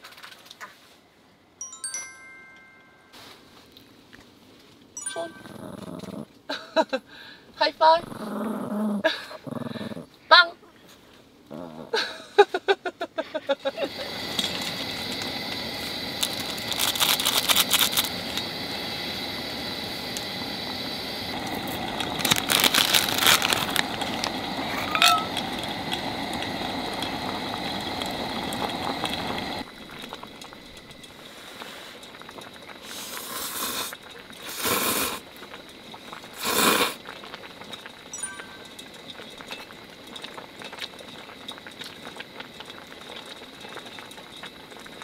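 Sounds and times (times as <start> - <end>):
broth boiling hard in a pot: 13.6 - 45.0
dry noodles crackling and rustling: 16.2 - 18.2, 21.5 - 24.8
person slurping broth: 32.8 - 35.2, 36.4 - 37.2.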